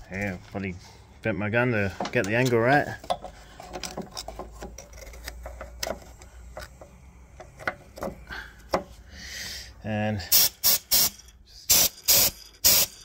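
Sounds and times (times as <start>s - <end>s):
steady low hum: 2.9s - 13.0s.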